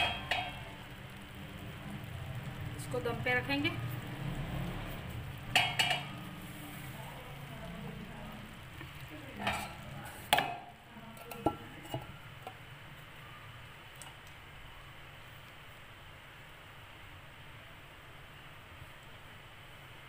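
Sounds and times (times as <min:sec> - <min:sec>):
metal pot lid clinking: 0:00.0 - 0:00.7, 0:05.5 - 0:06.2, 0:09.4 - 0:12.6
light tapping on pot: 0:00.0 - 0:00.9, 0:05.5 - 0:06.4, 0:08.8 - 0:12.6.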